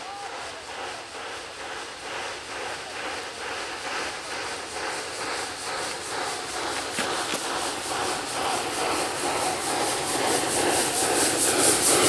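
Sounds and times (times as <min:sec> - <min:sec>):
steam locomotive chuffing: 0:00.0 - 0:12.0.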